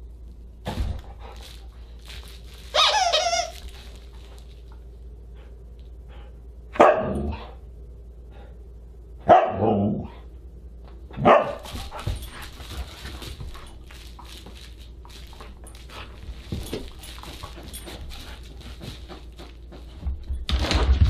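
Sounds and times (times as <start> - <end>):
dog scratching through toys: 1.2 - 4.8, 11.6 - 21.0
dog barking: 6.7 - 7.5, 9.2 - 10.1, 11.2 - 11.7.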